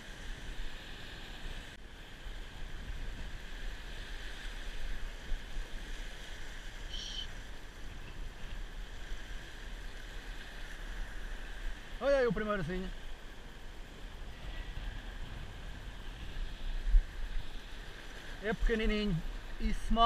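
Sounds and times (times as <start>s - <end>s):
surf on rocks: 0.0s - 20.0s
wind rumbling on microphone: 0.0s - 20.0s
brief high squeak: 6.9s - 7.3s.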